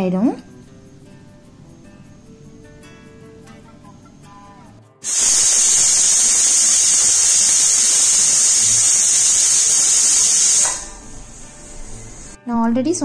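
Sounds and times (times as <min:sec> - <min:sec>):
pressure cooker whistling: 0:05.0 - 0:12.4.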